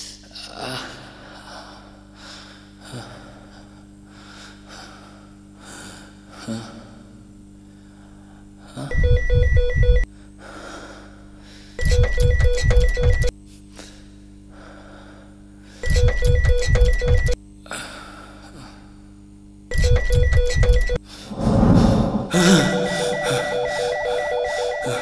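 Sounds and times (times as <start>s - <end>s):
man breathing heavily: 0.6s - 7.0s, 7.6s - 8.8s, 10.2s - 11.8s, 13.7s - 15.8s, 21.1s - 25.0s
phone ringing with electronic beeps: 8.9s - 10.0s, 11.8s - 13.3s, 15.9s - 17.4s, 19.7s - 21.0s, 22.6s - 25.0s
low steady hum: 21.1s - 25.0s
man mumbling: 22.3s - 23.8s.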